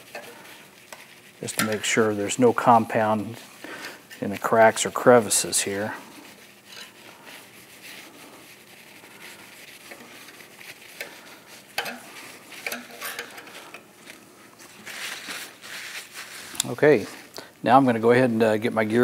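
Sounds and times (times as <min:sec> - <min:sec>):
cloth rubbing on steel plate: 0:00.0 - 0:17.3.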